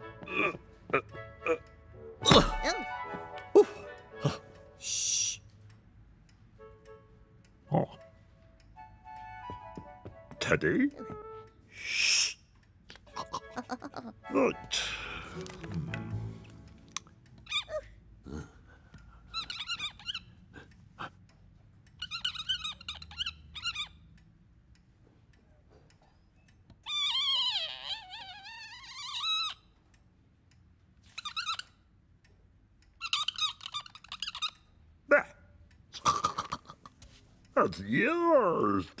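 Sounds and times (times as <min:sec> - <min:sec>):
wavering squeaky tones: 0:19.4 - 0:20.4, 0:22.0 - 0:24.0, 0:26.9 - 0:29.6, 0:33.0 - 0:34.6.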